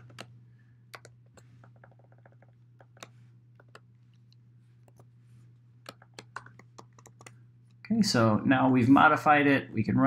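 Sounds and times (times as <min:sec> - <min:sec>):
faint computer keyboard keystrokes: 0:00.0 - 0:00.3, 0:00.9 - 0:05.1, 0:05.8 - 0:07.8
steady low hum: 0:00.0 - 0:10.0.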